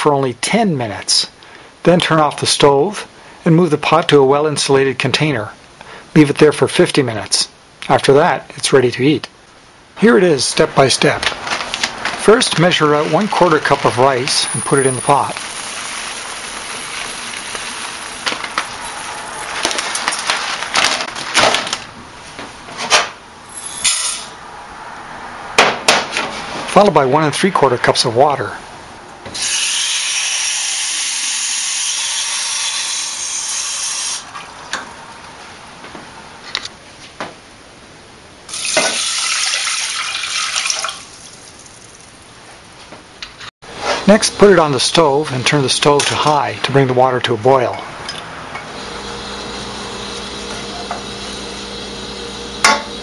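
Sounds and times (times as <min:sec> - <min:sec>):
rice pouring into a glass cup: 0:13.0 - 0:20.7, 0:38.5 - 0:41.9.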